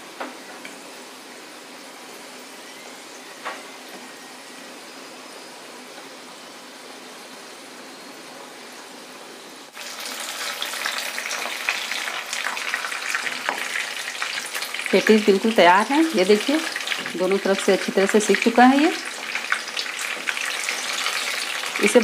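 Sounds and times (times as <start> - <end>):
oil sizzling in a pan: 9.7 - 22.0.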